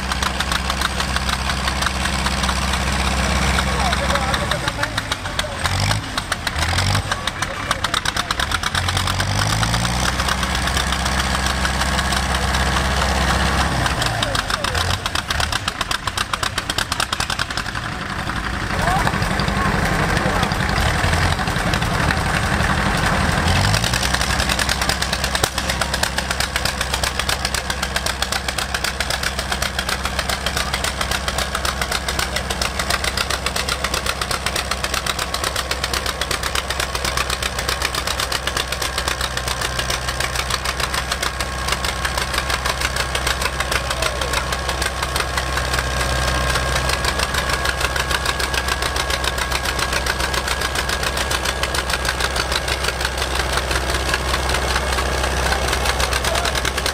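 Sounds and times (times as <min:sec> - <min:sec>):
tractor engines exhaust beat: 0:00.0 - 0:56.9.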